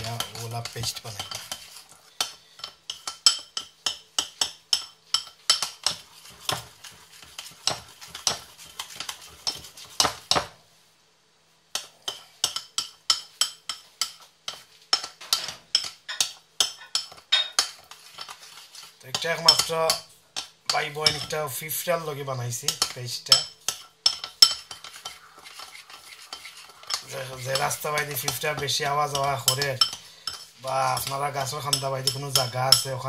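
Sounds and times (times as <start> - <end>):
spoon clinking against ceramic bowl: 0.0 - 6.0, 19.1 - 21.4, 22.7 - 33.0.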